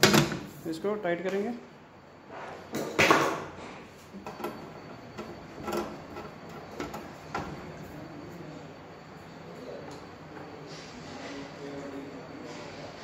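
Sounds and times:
screwdriver clicking and scraping on metal: 0:04.2 - 0:07.5.

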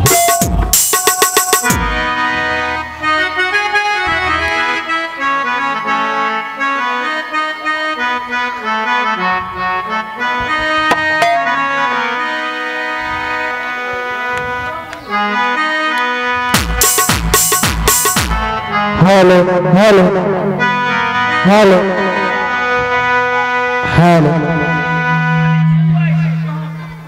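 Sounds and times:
reedy keyboard melody: 0:00.0 - 0:27.0
sharp knocks: 0:10.4 - 0:11.6.

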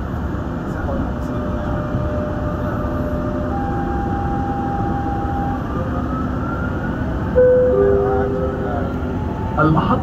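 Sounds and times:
electric traction whine: 0:07.3 - 0:10.0.

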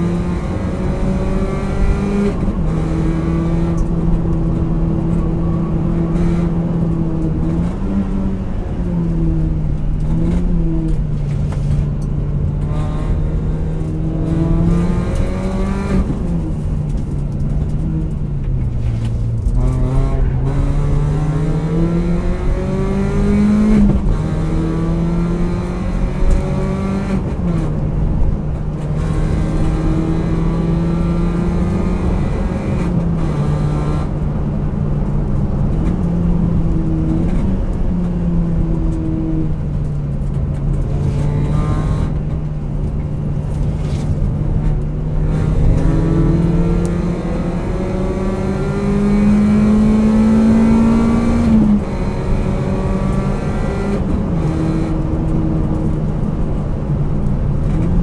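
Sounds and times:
car engine accelerating through gears: 0:00.0 - 0:58.0
road noise: 0:00.0 - 0:58.0.

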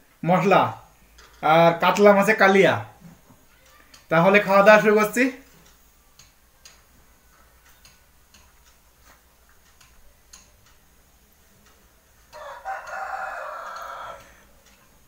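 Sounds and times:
rooster crowing: 0:12.3 - 0:14.5.

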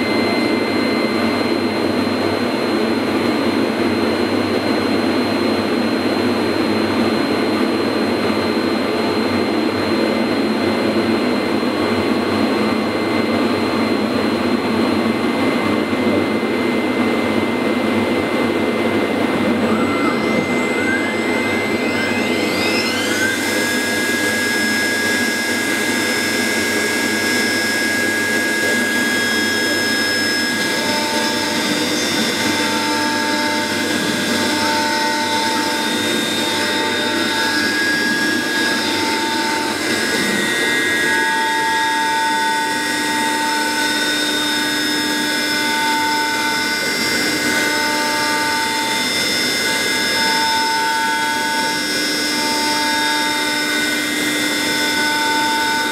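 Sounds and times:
router spindle whine: 0:00.0 - 0:55.9
vacuum noise: 0:00.0 - 0:55.9
bit cutting board tone: 0:18.8 - 0:44.8.

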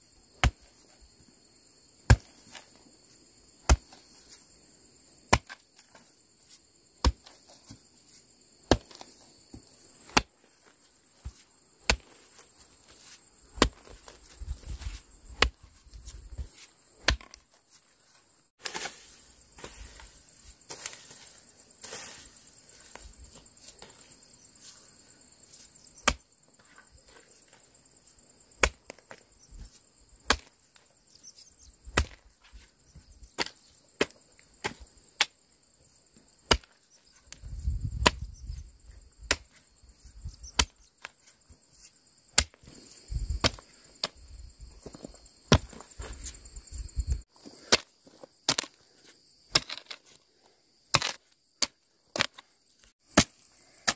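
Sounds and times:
insects buzzing: 0:00.0 - 0:53.9
hoe chopping into dry soil: 0:00.4 - 0:01.0, 0:02.0 - 0:02.8, 0:03.6 - 0:04.4, 0:05.2 - 0:17.6, 0:18.6 - 0:24.8, 0:25.5 - 0:27.7, 0:28.5 - 0:30.9, 0:31.9 - 0:35.4, 0:36.4 - 0:38.6, 0:39.2 - 0:50.2, 0:50.9 - 0:53.9
hoe scraping through dry stalks: 0:12.1 - 0:24.8.

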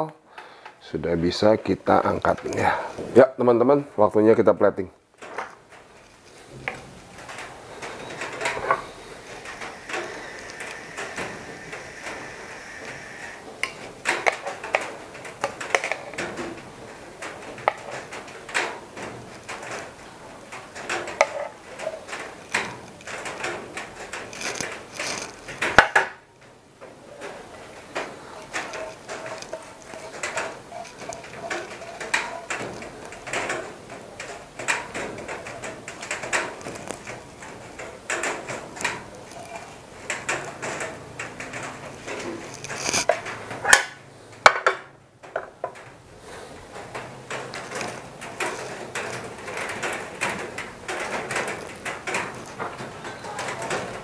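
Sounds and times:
metal tongs clattering on pan: 0:28.0 - 0:43.8.

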